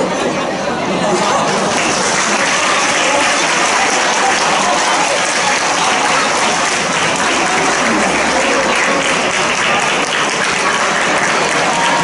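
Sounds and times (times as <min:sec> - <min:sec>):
audience applauding: 0:01.5 - 0:12.0.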